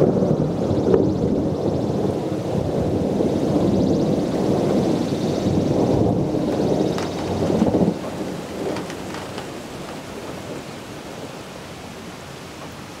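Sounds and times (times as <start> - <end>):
rain falling: 0.0 - 13.0
thunder rumbling: 0.0 - 13.0.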